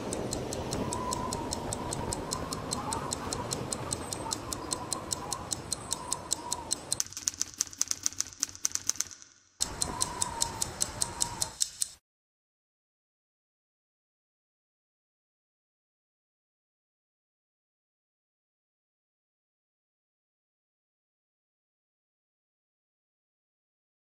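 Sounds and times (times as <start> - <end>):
clock ticking rapidly: 0.0 - 12.0.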